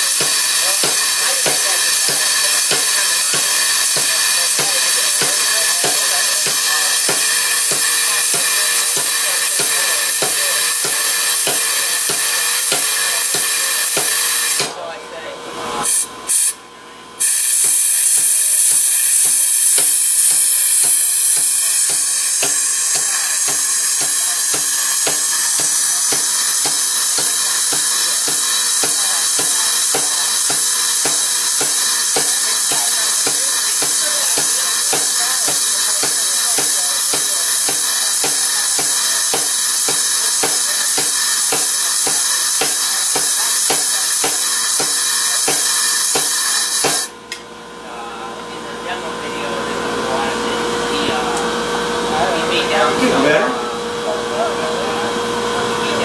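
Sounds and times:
power hammer blows: 0:00.0 - 0:14.8, 0:17.3 - 0:47.1.

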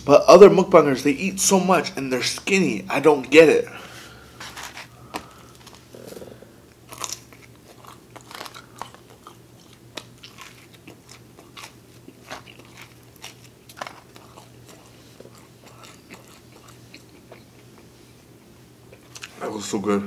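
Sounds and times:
person chewing crunchy crust: 0:04.4 - 0:17.9, 0:18.9 - 0:19.4.

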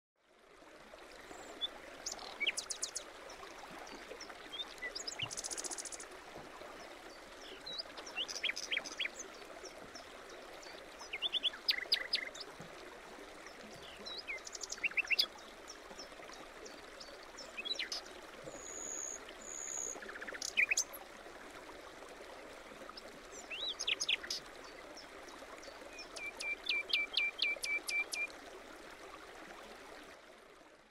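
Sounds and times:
songbirds chirping: 0:06.7 - 0:12.5.

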